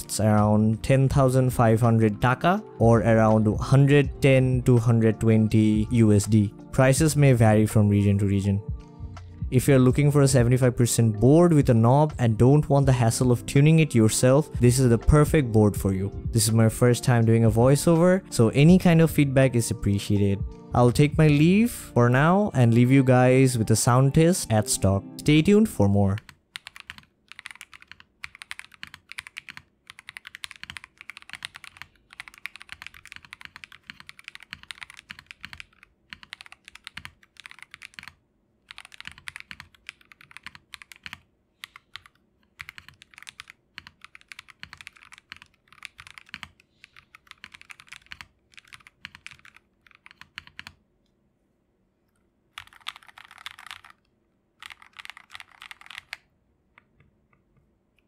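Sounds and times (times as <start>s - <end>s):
typing on mechanical keyboard: 26.1s - 50.8s, 52.6s - 56.2s.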